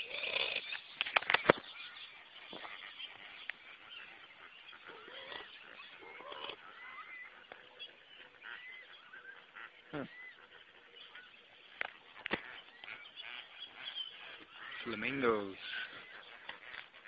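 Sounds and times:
waterbirds honking and calling: 0.0 - 17.0.

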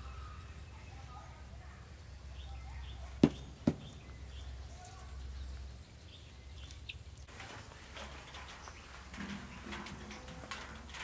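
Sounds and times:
faint bird chirps: 0.0 - 7.1
outdoor background noise: 0.0 - 11.0
sharp knocks: 3.2 - 4.1.

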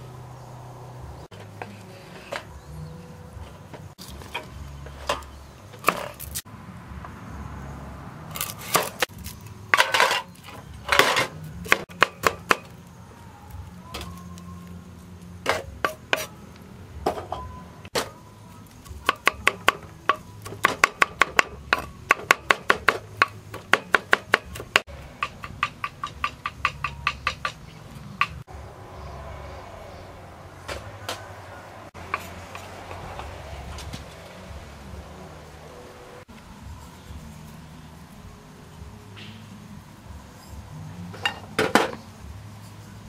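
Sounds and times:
scraping and handling sounds: 8.4 - 11.4.

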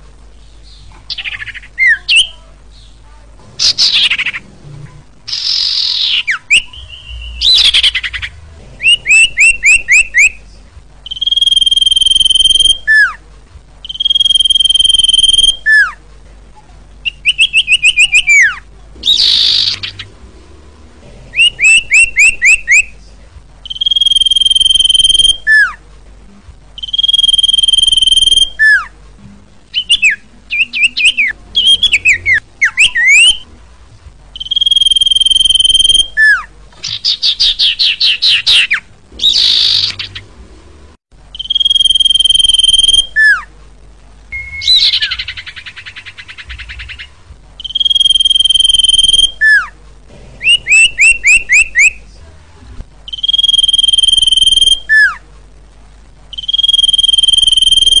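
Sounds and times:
harsh rasping bird notes: 0.4 - 13.2, 17.0 - 23.0, 29.6 - 33.8, 34.4 - 43.5, 44.3 - 52.0
bird whistling song: 0.6 - 3.0, 3.6 - 4.4, 5.3 - 10.4, 11.0 - 13.2, 13.8 - 16.0, 17.0 - 20.1, 21.3 - 22.9, 23.6 - 25.8, 26.8 - 28.9, 29.7 - 33.5, 34.4 - 40.3, 41.3 - 43.5, 44.3 - 49.7, 50.4 - 52.0, 53.1 - 55.2, 56.3 - 58.0.

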